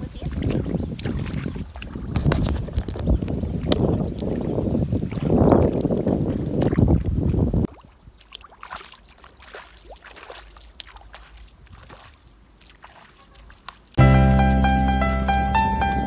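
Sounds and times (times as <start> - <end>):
feet sloshing through muddy water: 0.0 - 14.0
piano music: 14.0 - 16.0.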